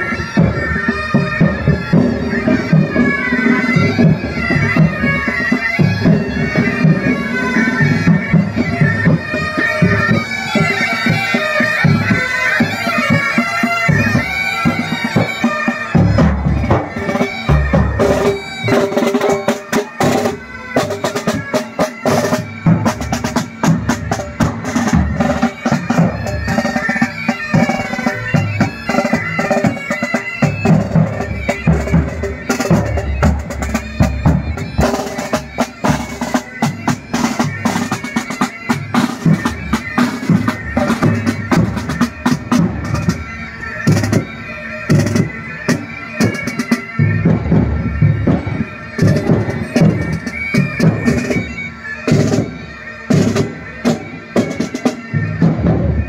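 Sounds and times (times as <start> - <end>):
bagpipes playing a march: 0.0 - 56.0
side drums beating: 0.0 - 56.0.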